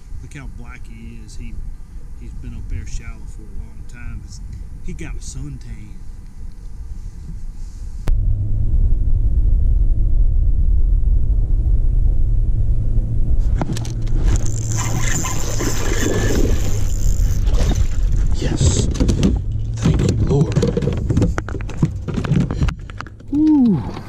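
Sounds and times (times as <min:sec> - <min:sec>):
low rumble on microphone: 0:00.0 - 0:24.0
spinning reel cranking: 0:14.2 - 0:18.1.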